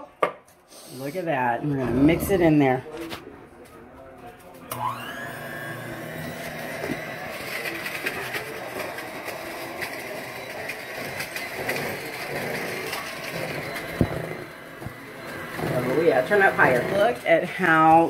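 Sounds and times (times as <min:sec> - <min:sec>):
electric hand mixer running: 0:04.7 - 0:18.0.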